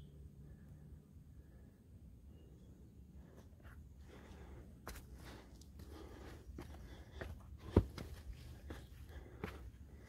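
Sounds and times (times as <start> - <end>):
footsteps on rocky trail: 3.6 - 10.0.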